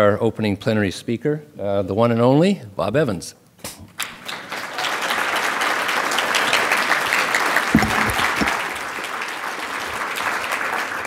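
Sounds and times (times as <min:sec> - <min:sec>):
audience applauding: 0:04.0 - 0:11.0
low thumps: 0:07.7 - 0:08.6.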